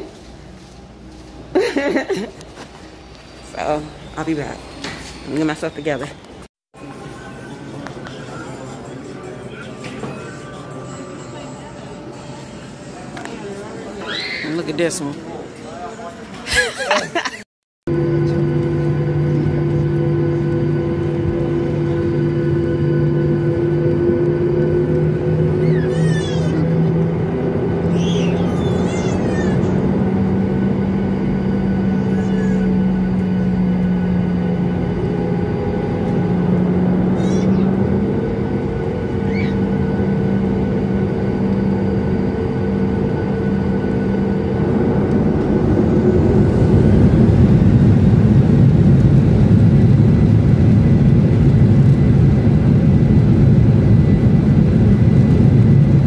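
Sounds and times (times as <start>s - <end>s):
jet engines humming in cabin: 17.9s - 56.0s.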